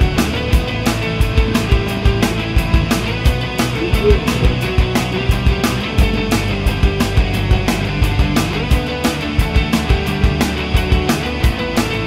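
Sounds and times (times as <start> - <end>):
rock music: 0.0 - 12.0.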